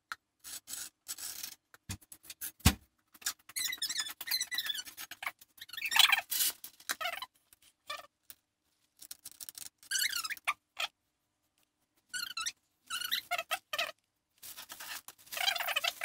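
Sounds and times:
scraper scratching and squeaking: 0.4s - 1.6s, 3.2s - 8.2s, 9.1s - 11.0s, 12.0s - 16.0s.

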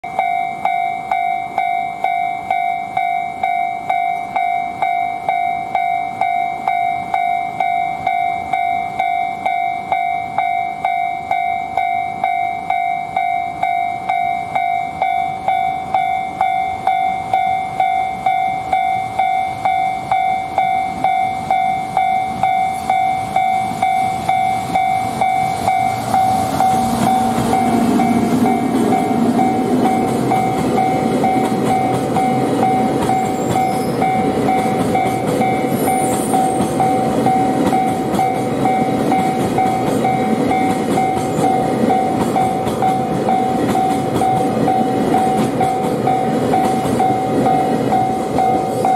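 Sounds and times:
level crossing bell ringing: 0.0s - 48.9s
train wheels clattering over rail joints: 24.6s - 48.9s.

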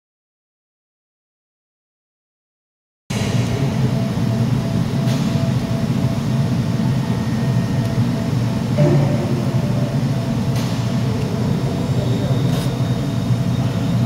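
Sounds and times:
low industrial rumble: 3.1s - 14.0s
faint intermittent tone: 8.8s - 10.5s.

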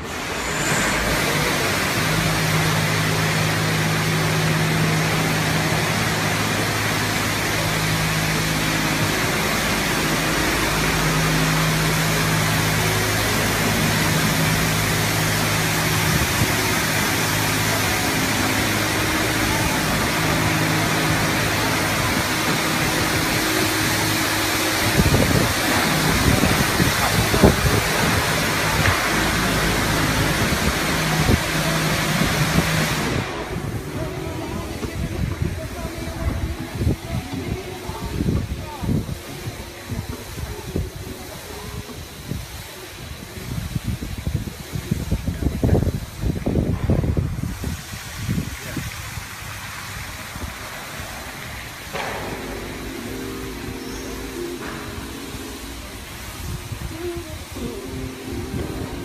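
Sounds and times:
high-pressure water jets hissing: 0.0s - 59.0s
low steady hum: 49.7s - 59.0s.

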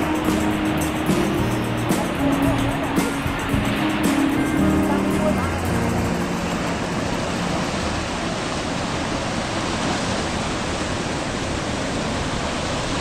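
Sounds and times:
water rushing along a channel: 0.0s - 13.0s.

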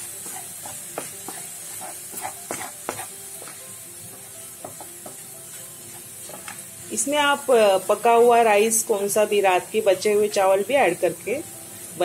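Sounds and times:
masala sizzling in oil: 0.0s - 12.0s
wooden spatula scraping pan: 0.2s - 3.6s.

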